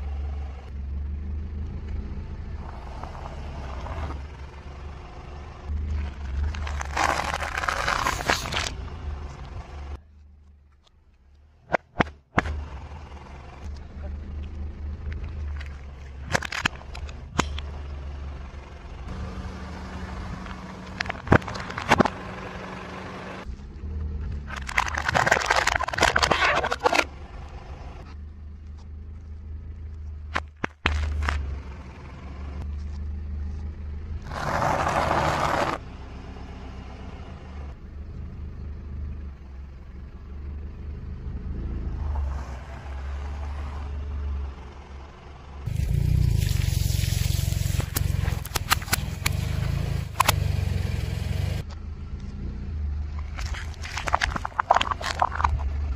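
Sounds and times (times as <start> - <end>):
car engine hum: 0.0 - 55.9
tyre crunching objects: 5.9 - 8.8, 20.4 - 22.4, 24.4 - 27.1, 30.3 - 31.5, 53.2 - 55.9
water balloons bursting: 53.2 - 55.8.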